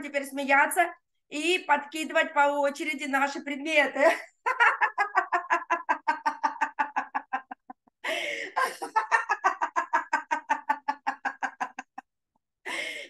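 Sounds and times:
woman laughing loudly: 4.5s - 12.0s
woman drawing breath: 8.0s - 8.8s, 12.7s - 13.0s.

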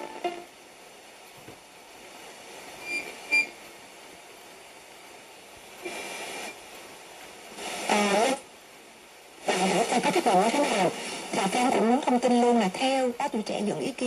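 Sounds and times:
radio static hiss: 0.0s - 14.0s
snatches of radio broadcasts: 5.8s - 6.6s, 7.5s - 8.5s, 9.4s - 13.1s.

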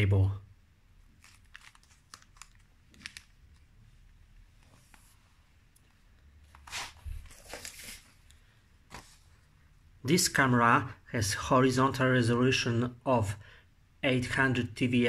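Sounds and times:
plastic bag crinkling: 1.0s - 4.1s.

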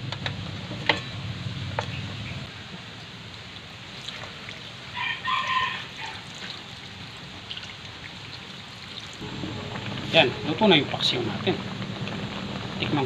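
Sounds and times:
rooster crowing: 4.9s - 6.3s.

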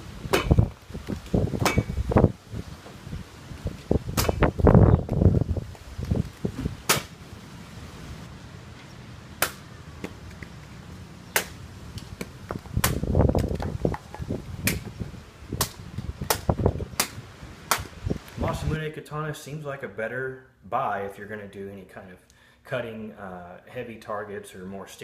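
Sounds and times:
sword cutting foam targets: 0.3s - 0.7s, 1.6s - 2.0s, 4.2s - 4.5s, 6.8s - 7.1s
sharp cracks: 4.1s - 5.2s, 6.0s - 7.2s, 9.4s - 10.5s, 11.3s - 14.9s, 15.5s - 18.0s.

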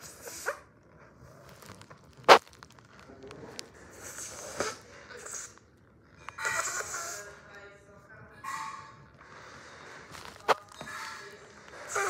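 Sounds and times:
balloon snapping: 2.2s - 2.8s.

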